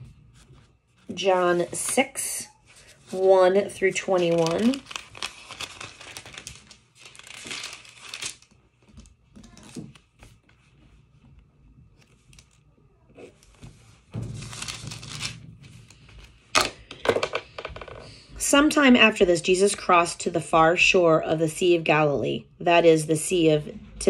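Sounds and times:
paper pages turning: 0.3s - 11.0s, 12.0s - 13.8s, 14.4s - 16.3s.

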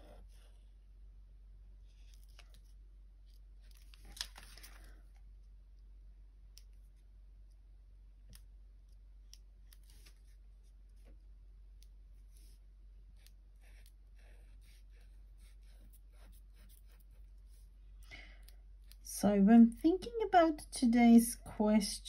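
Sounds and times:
low steady hum: 0.0s - 22.0s
paper rustle: 3.7s - 5.0s
marker scratching on paper: 13.2s - 17.7s.

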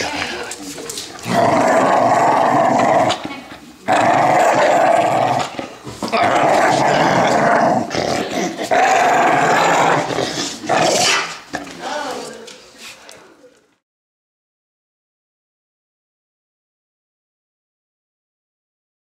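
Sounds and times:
dog growling in play: 1.2s - 11.7s.

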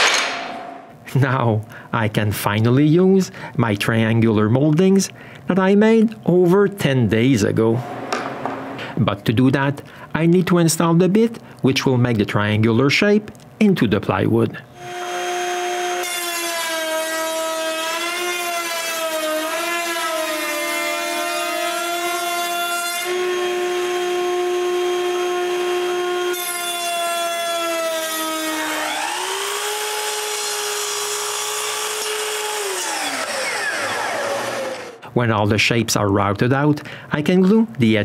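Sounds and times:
router whining: 14.8s - 35.0s
miter saw running: 27.5s - 35.0s.

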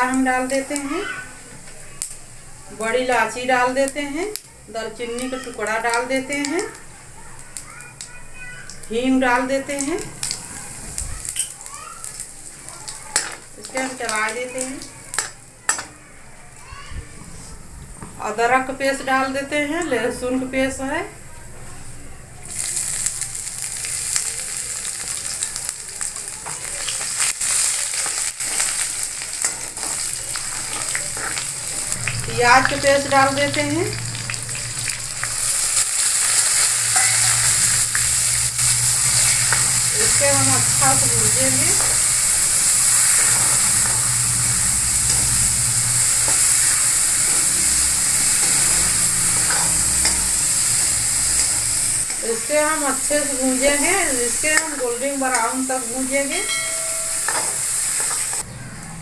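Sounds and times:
paste sizzling in hot oil: 0.0s - 16.9s, 22.3s - 58.4s
spoon scraping pan: 28.0s - 58.4s.

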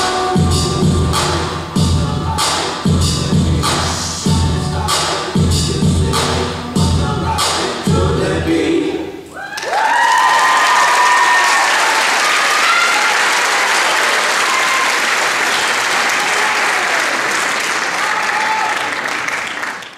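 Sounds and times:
high cheers: 9.3s - 19.9s
audience applauding: 9.4s - 19.9s.

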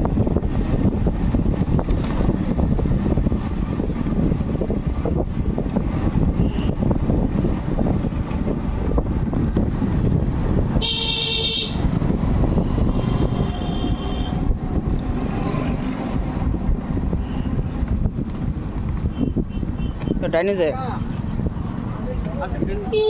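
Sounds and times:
road rumble: 0.0s - 23.0s
wind: 0.0s - 23.0s
vehicle horn: 6.4s - 6.8s, 10.8s - 11.8s, 12.9s - 14.4s, 19.1s - 20.2s.

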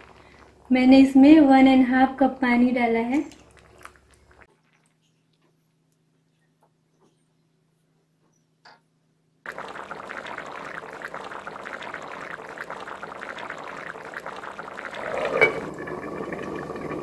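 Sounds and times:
curry boiling and bubbling: 0.0s - 2.0s, 2.8s - 6.6s, 9.5s - 17.0s.

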